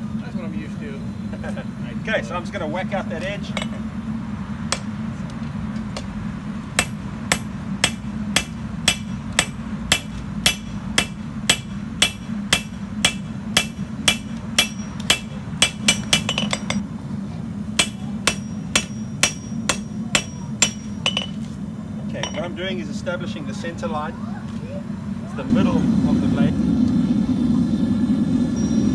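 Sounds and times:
hammer ringing on anvil: 6.8 - 16.8, 17.8 - 21.4, 22.2 - 22.6.

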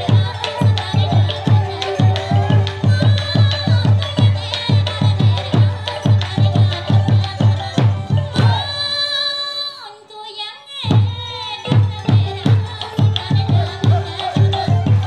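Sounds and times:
drum beat: 0.0 - 8.8, 10.9 - 15.0
sliding melody line: 0.0 - 8.8.

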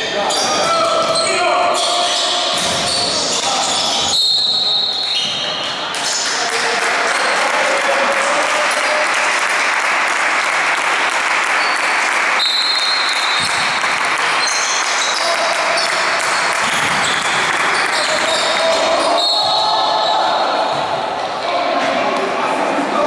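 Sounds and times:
shrill whistle blasts: 3.9 - 5.5, 12.4 - 13.6, 19.1 - 20.2
crowd clapping and cheering: 5.9 - 19.2.

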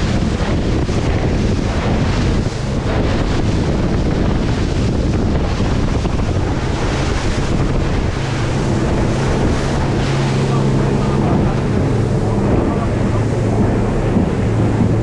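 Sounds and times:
low engine hum: 0.0 - 15.0
water rushing along hull: 0.0 - 15.0
wind buffeting microphone: 0.0 - 15.0.

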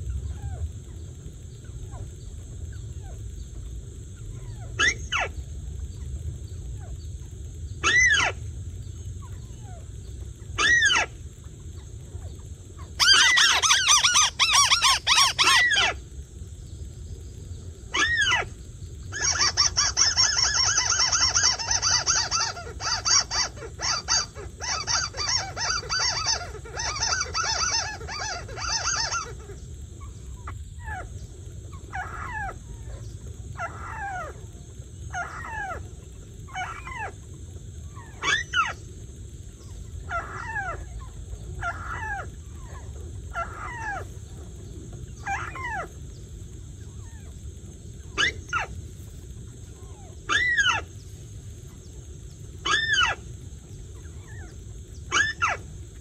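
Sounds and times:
electronic bird calls: 12.9 - 16.0, 17.9 - 31.2, 52.6 - 53.3, 54.0 - 55.7.

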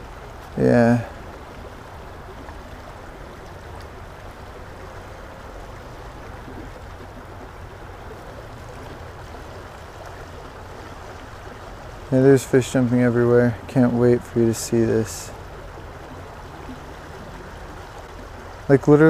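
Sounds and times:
stream water flowing: 0.0 - 19.0.

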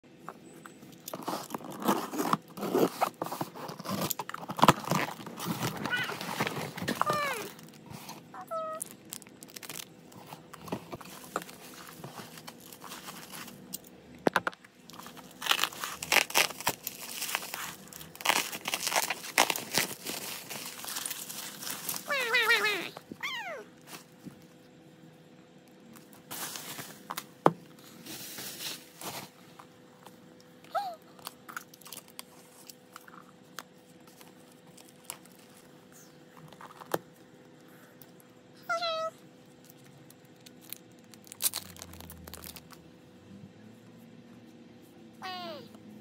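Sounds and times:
cardboard and bubble wrap crinkling: 1.0 - 13.8, 14.9 - 24.4, 26.0 - 30.2, 31.7 - 37.3, 39.7 - 42.8.

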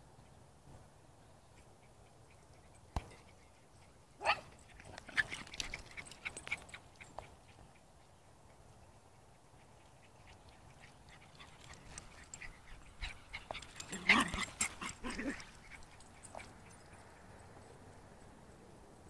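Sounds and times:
small dog barking and yipping: 4.2 - 7.6, 9.6 - 17.2.

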